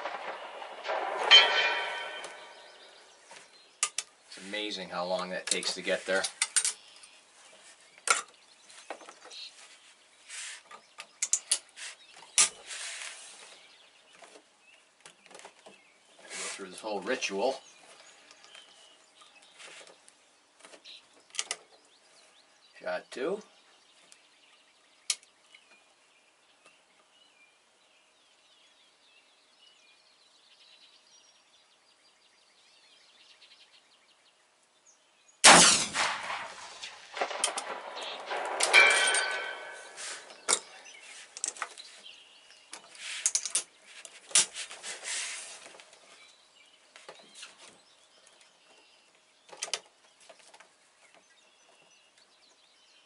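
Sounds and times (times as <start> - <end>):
rifle shot: 0.0 - 3.1, 35.4 - 40.3
faint bird chirps: 37.6 - 44.1.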